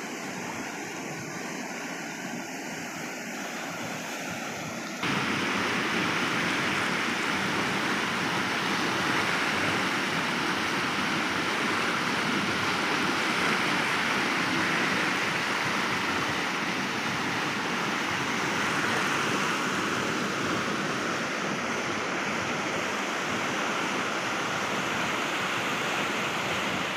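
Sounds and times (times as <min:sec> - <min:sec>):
river rushing over rocks: 0:00.0 - 0:26.9.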